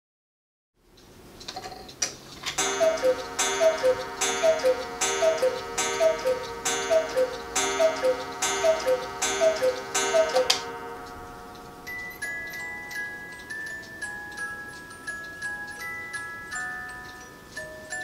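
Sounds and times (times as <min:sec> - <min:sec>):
cuckoo clock calls: 0:02.6 - 0:18.0.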